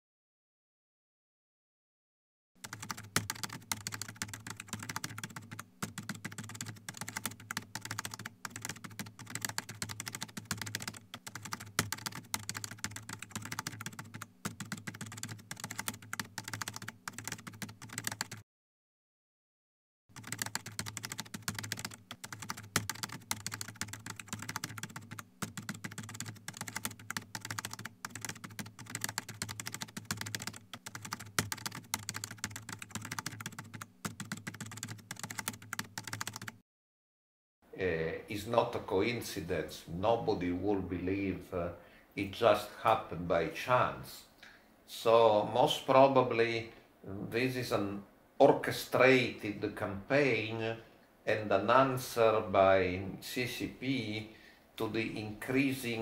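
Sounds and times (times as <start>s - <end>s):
computer keyboard typing: 2.6s - 18.4s, 20.1s - 36.6s.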